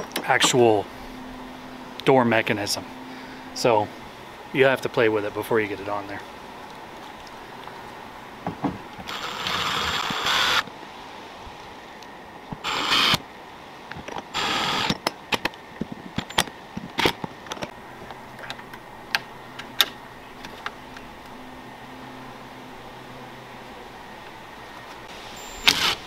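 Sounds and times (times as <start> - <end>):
cordless drill running: 9.1 - 10.6, 12.6 - 13.2, 14.4 - 14.9, 25.6 - 26.0.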